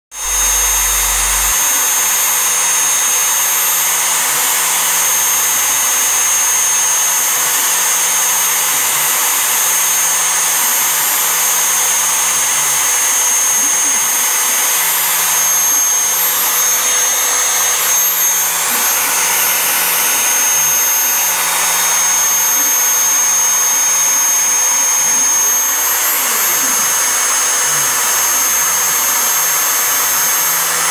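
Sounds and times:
router spindle high whine: 0.1 - 30.9
stepper motors humming: 0.2 - 5.6, 14.1 - 30.9.

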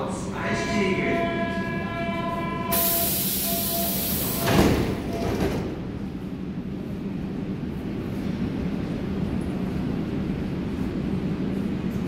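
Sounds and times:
loud air hiss: 2.7 - 4.6
train doors shutting thud: 2.7 - 5.9.

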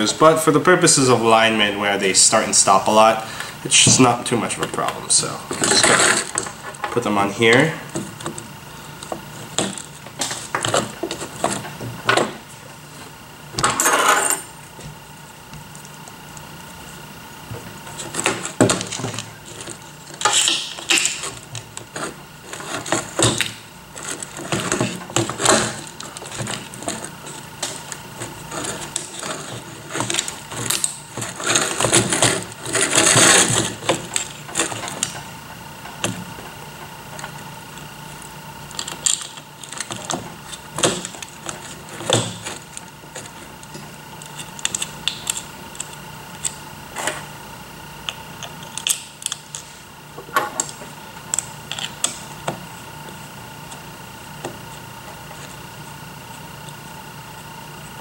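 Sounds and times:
scraping and rubbing: 23.9 - 35.3.

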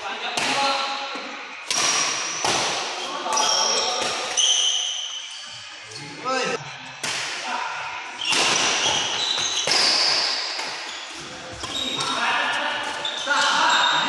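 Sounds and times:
sneakers squeaking on floor: 1.9 - 6.2, 8.2 - 14.0.

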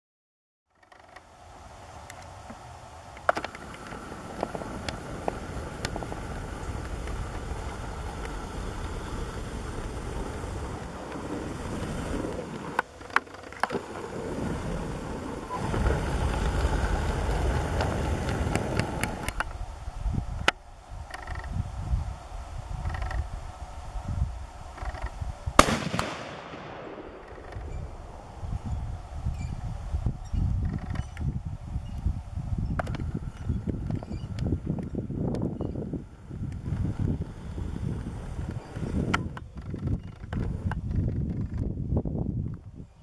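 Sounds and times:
wind noise on microphone: 1.0 - 43.0
sharp cracks and clicks: 24.8 - 27.8.

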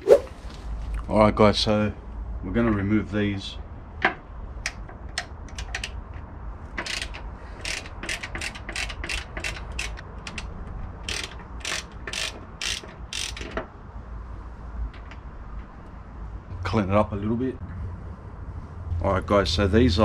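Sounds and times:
hand ratchet clicking: 6.7 - 13.6.

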